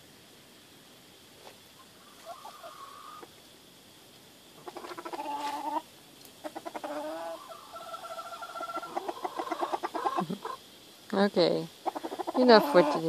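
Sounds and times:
chickens calling: 1.8s - 3.4s, 4.6s - 10.7s, 11.7s - 13.0s.

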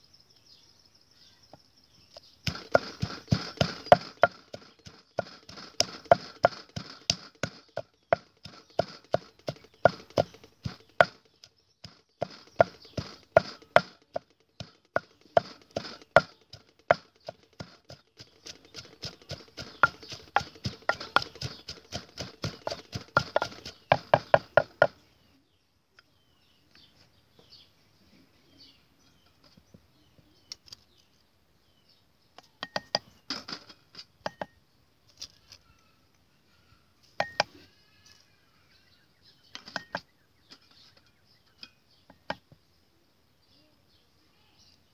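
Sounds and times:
wooden pestle pounding in mortar: 2.4s - 25.0s, 37.2s - 37.5s, 39.6s - 40.1s.

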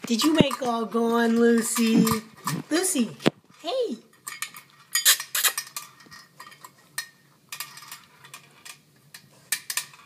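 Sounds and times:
dog eating from bowl: 4.1s - 10.0s.

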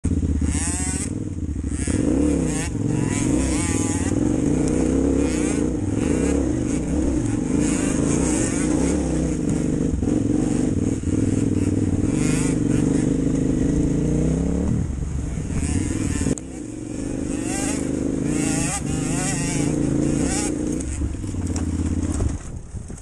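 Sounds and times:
dirt bike engine revving: 0.0s - 22.5s.

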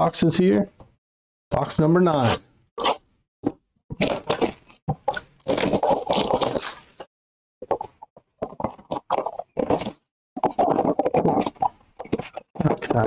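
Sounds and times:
cardboard box wrapper crinkling: 4.0s - 7.0s.

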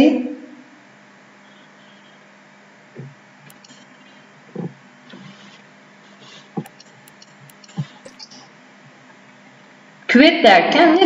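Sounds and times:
low steady hum: 0.0s - 11.0s
soft thumps: 3.0s - 3.8s
sharp ticks: 3.0s - 5.3s, 6.2s - 9.0s.

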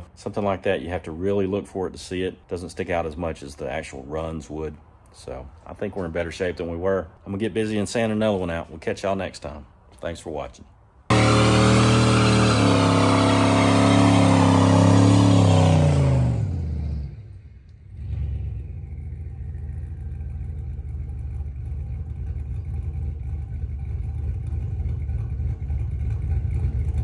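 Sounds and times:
engine revving high: 11.1s - 20.4s
low engine rumble: 11.1s - 27.0s.

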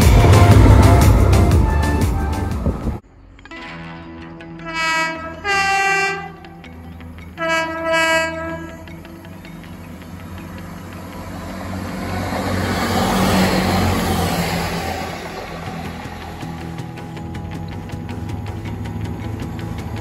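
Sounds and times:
train running rumble: 0.0s - 3.0s, 4.6s - 20.0s
train two-tone horn: 4.5s - 9.3s.

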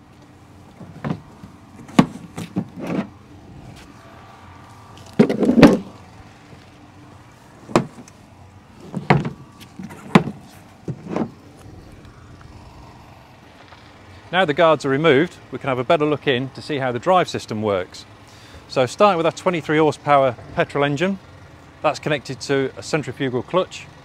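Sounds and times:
metal guards clicking and clunking: 0.2s - 3.2s, 5.0s - 6.0s, 7.6s - 8.2s, 8.8s - 11.4s.

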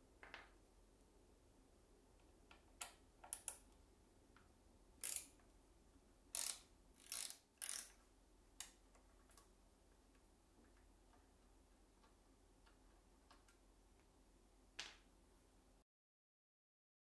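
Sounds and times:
metal part clicking on plastic: 5.0s - 5.4s.

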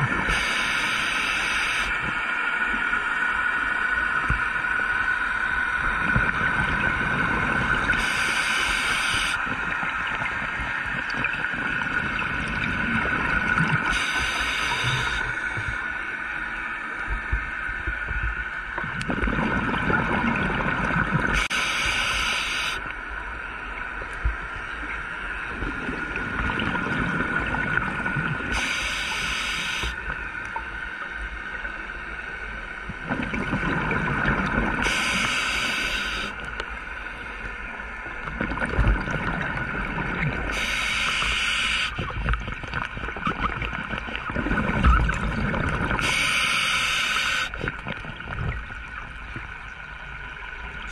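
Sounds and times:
exhaled bubbles rumbling: 0.0s - 0.4s, 5.6s - 8.2s, 9.4s - 15.8s, 17.0s - 21.4s, 24.2s - 28.5s, 32.8s - 35.0s, 37.8s - 40.7s, 42.0s - 46.3s, 47.5s - 50.9s
regulator inhale hiss: 0.3s - 1.9s, 8.0s - 9.4s, 13.9s - 15.5s, 21.4s - 22.8s, 28.5s - 30.0s, 34.8s - 36.4s, 40.5s - 42.0s, 46.0s - 47.6s.

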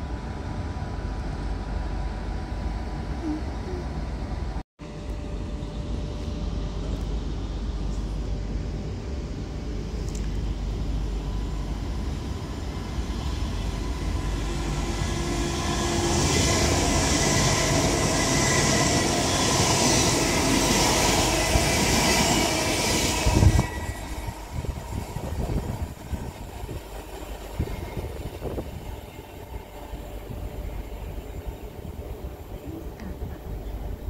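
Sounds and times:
train wheels rumbling on rail: 0.0s - 34.0s
train motor whine: 8.8s - 34.0s.

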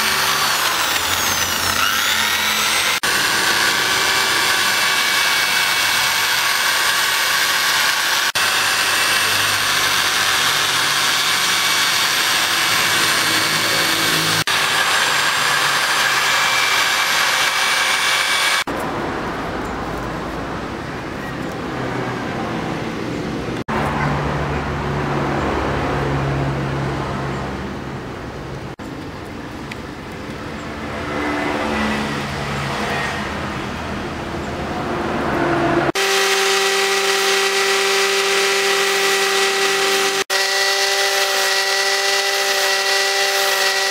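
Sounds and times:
electric mini drill whining: 0.0s - 18.7s, 35.9s - 43.9s.

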